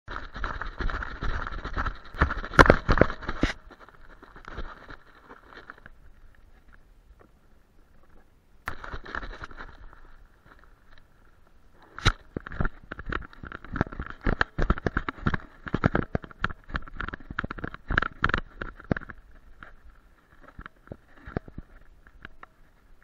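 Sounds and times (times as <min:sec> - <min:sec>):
camera knocking and rattling: 0:00.1 - 0:05.9, 0:08.7 - 0:11.0, 0:12.0 - 0:22.7
brush scraping: 0:00.1 - 0:06.0.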